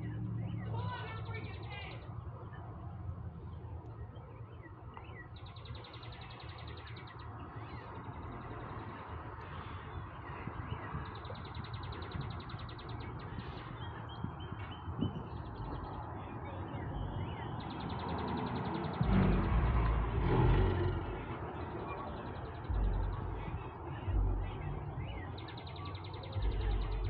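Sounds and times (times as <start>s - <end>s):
birds calling: 0.0s - 27.0s
steady low rumble: 18.9s - 27.0s.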